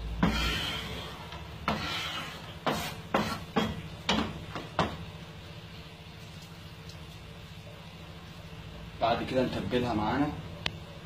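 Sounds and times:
knife scraping cutting board: 0.2 - 3.8.

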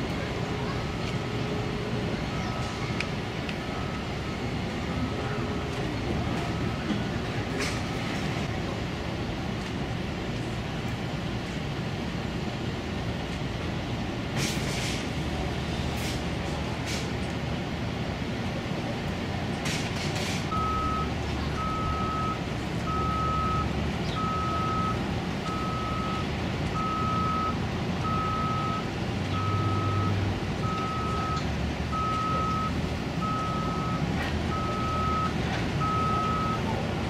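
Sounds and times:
reversing alarm beeping: 3.6 - 5.4, 20.5 - 36.7.

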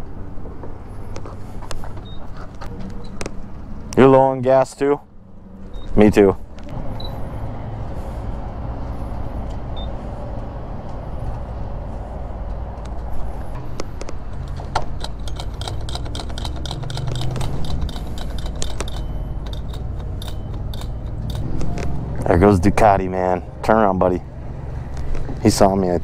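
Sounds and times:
low hum: 0.0 - 15.4
fuel nozzle clicks and rattles: 13.6 - 21.9.

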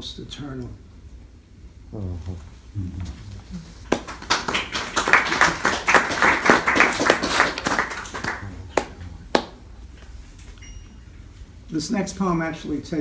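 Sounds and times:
audience clapping: 3.6 - 9.7.

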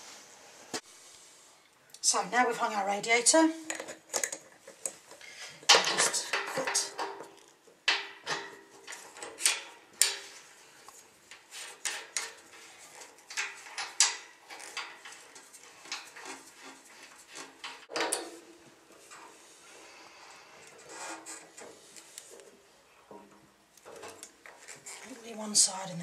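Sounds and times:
metal fitting clicks and knocks: 5.6 - 10.4, 17.6 - 18.4.

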